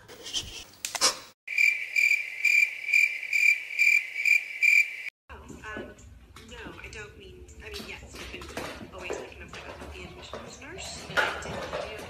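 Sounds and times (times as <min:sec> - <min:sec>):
crickets chirping: 0:01.5 - 0:05.1.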